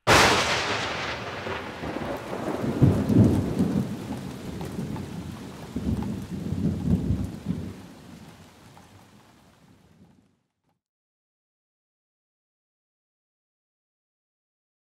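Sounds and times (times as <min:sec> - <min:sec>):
thunder rumbling: 0:00.0 - 0:10.2
steady rain: 0:00.1 - 0:10.6.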